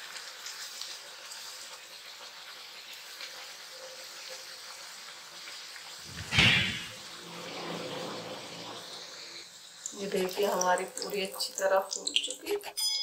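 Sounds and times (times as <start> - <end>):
hot oil sizzling: 0.0 - 13.0
loud thump: 6.1 - 7.0.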